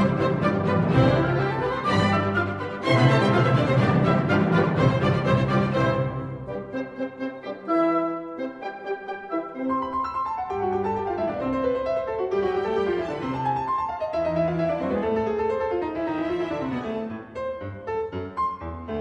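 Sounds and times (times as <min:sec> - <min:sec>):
keyboard accompaniment: 0:00.0 - 0:16.0
classical background music: 0:00.0 - 0:19.0.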